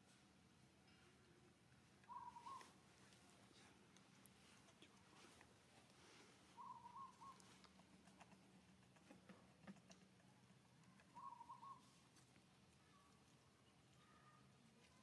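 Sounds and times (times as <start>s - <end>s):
infant monkey coo calls: 2.0s - 2.8s, 6.6s - 12.0s.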